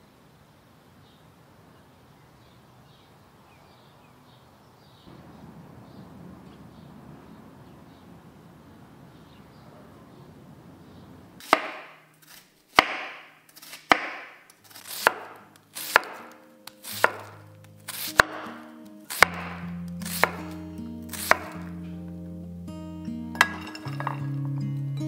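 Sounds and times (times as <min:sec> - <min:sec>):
knife chopping on wooden board: 0:11.4 - 0:12.0, 0:12.7 - 0:21.7.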